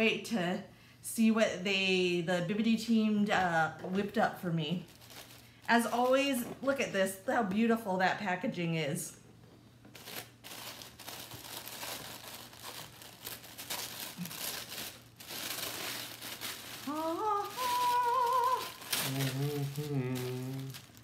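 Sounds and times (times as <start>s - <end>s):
tissue paper crinkling: 4.8s - 6.4s, 9.9s - 21.0s
woman humming: 16.8s - 20.9s.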